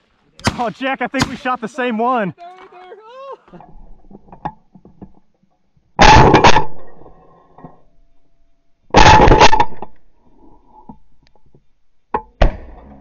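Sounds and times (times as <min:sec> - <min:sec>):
shotgun blasts: 0:00.4 - 0:01.6.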